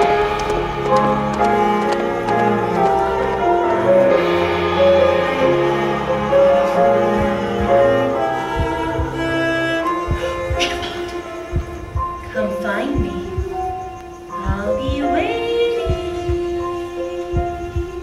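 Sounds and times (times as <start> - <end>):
slow instrumental music: 0.0 - 18.0
soft low thuds: 6.4 - 15.3.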